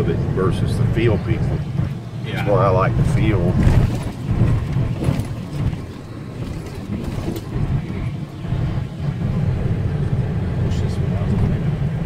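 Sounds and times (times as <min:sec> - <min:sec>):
engine and tyre rumble: 0:00.0 - 0:12.0
knocks and rattles: 0:03.0 - 0:08.0.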